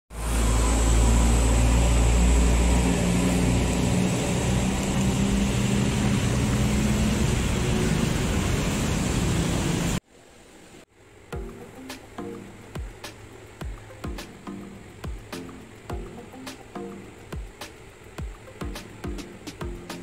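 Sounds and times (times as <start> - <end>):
deep urban rumble: 0.1 - 10.0
even hiss: 0.2 - 20.0.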